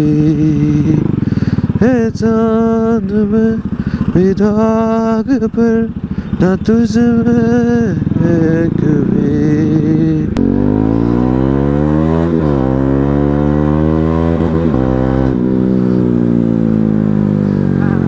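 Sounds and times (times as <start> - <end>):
motorcycle engine accelerating: 0.0 - 18.0.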